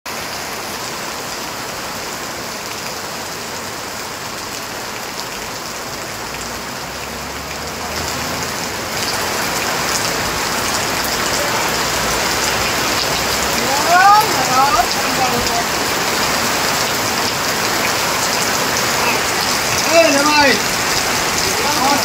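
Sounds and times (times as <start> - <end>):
heavy rain falling: 0.1 - 22.0
water pouring off roof: 0.1 - 22.0.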